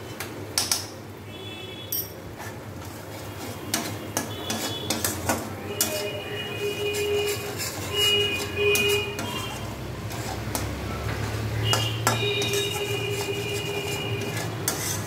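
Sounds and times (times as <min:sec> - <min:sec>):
spatula scraping a steel pan: 0:02.3 - 0:15.0
metallic squeal: 0:05.8 - 0:10.3, 0:11.6 - 0:15.0.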